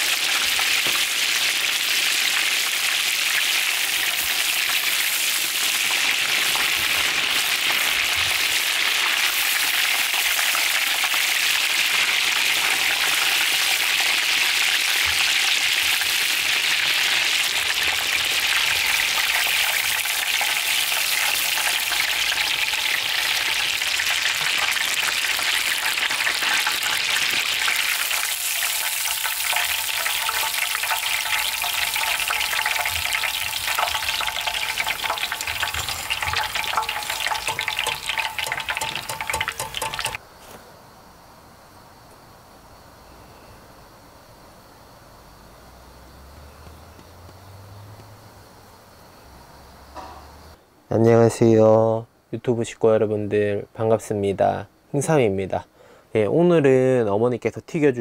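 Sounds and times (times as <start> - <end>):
food deep-frying in oil: 0.0 - 40.2.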